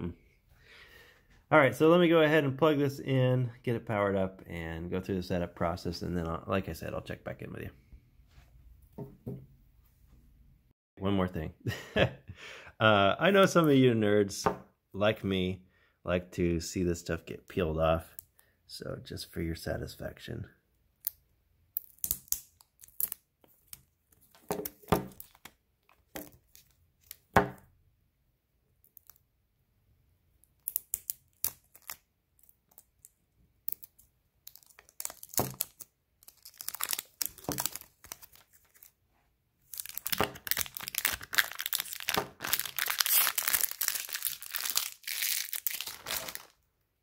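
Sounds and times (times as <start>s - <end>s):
plastic film crackling as peeled: 30.6s - 33.1s, 33.8s - 39.0s, 39.6s - 46.6s.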